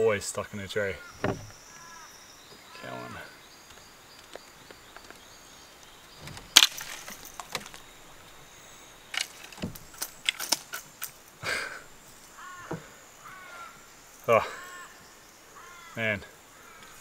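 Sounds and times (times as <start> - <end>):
sharp crack: 6.2 - 8.1.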